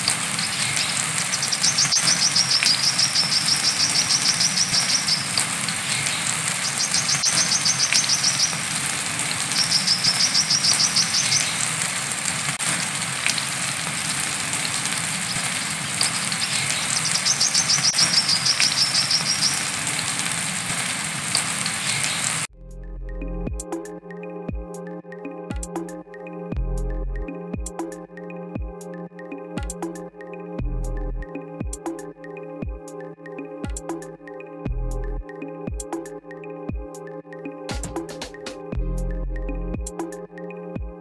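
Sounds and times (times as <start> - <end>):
rain hissing: 0.0 - 22.5
bird singing chattering trills: 0.4 - 8.6.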